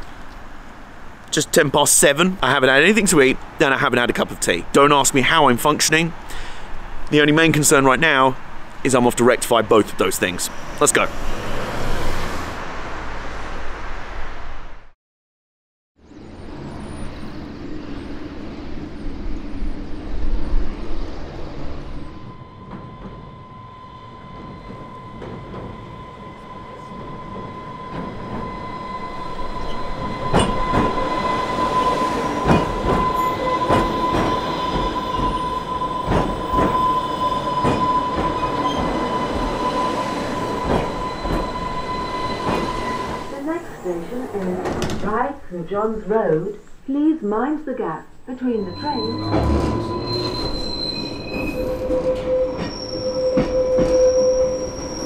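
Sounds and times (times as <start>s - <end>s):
electric train whine: 16.0s - 45.8s, 48.3s - 55.0s.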